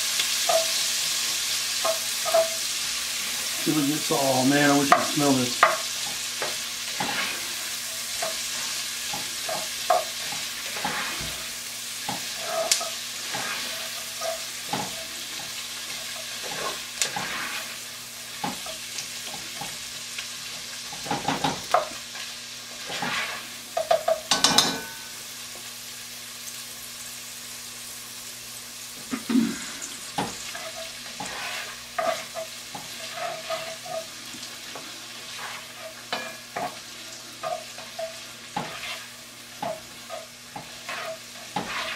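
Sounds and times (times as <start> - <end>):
onion and garlic sizzling in a pot: 0.0 - 41.9
utensil scraping and knocking pot: 30.2 - 34.1, 37.4 - 41.9.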